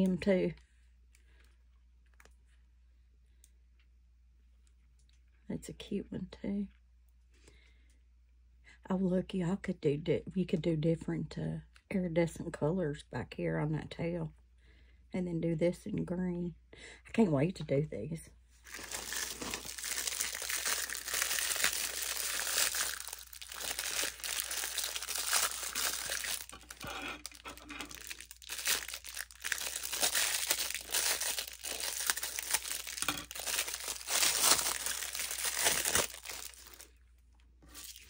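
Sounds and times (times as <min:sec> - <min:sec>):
plastic bag crinkling: 0:18.6 - 0:37.0, 0:37.7 - 0:38.0.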